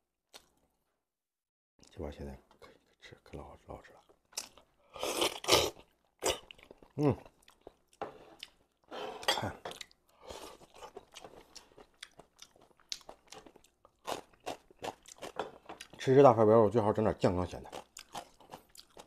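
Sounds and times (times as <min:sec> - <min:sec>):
man slurping and chewing: 0:04.9 - 0:15.9.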